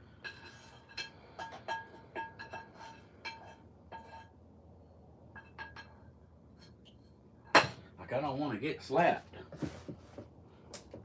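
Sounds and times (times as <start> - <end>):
metal utensil clinking on pan: 0.2 - 4.3.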